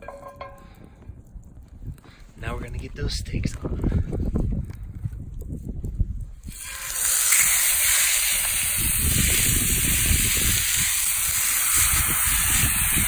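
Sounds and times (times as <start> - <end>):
steaks sizzling in a skillet: 6.5 - 13.0.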